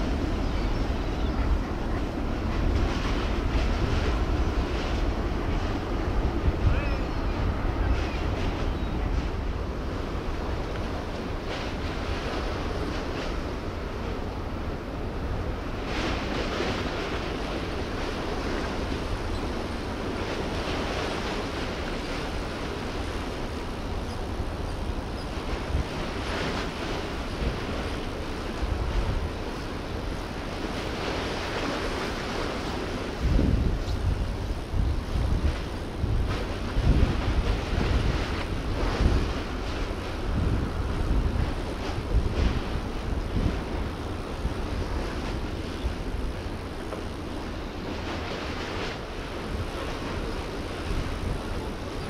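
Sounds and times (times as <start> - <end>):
ship engines rumbling: 0.0 - 52.0
wind and water hiss: 0.0 - 52.0.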